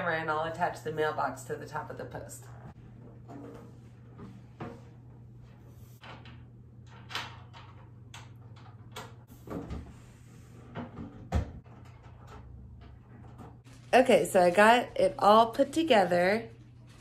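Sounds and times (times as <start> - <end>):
clicks and clunks of mailbox parts: 6.0 - 9.7, 11.0 - 13.7.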